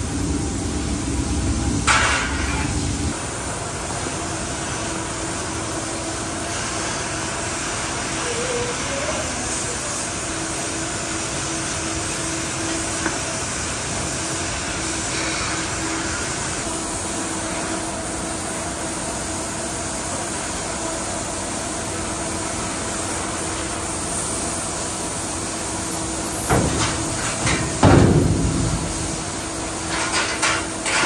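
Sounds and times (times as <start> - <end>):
factory machinery noise: 0.0 - 31.0
hissing air burst: 23.3 - 30.8.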